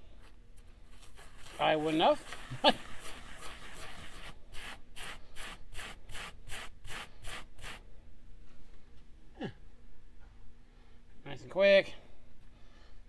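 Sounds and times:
metal gear rubbing on abrasive pad: 1.0 - 7.8.

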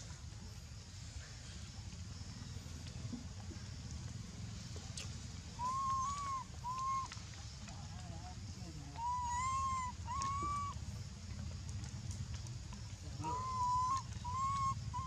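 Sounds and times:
low steady rumble: 0.0 - 15.0
young monkey whimpering cries: 5.6 - 7.1, 9.0 - 10.8, 13.3 - 15.0.

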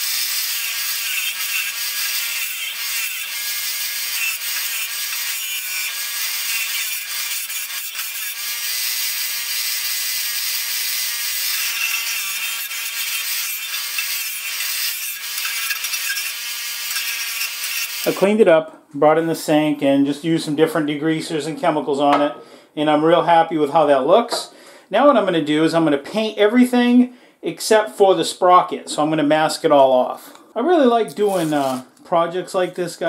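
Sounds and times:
wire wheel scratching metal: 11.5 - 18.2, 31.1 - 31.8.

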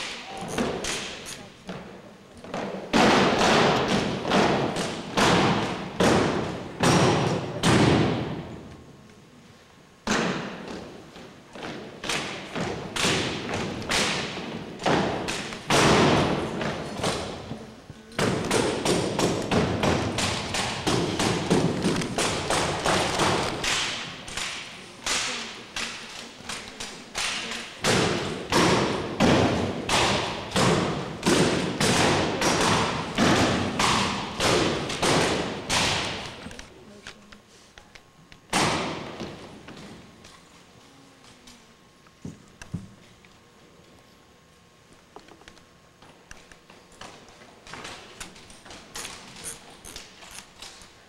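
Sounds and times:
rifles and boots striking wooden floor: 18.2 - 24.4.

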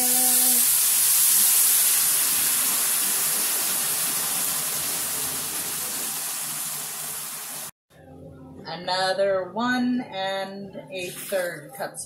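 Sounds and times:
water hissing and sizzling in skillet: 0.0 - 7.8.

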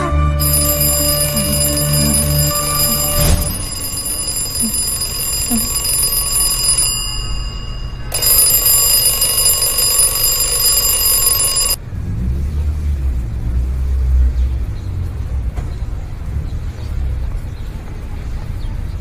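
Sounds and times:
phone alarm ringing: 0.4 - 11.8.

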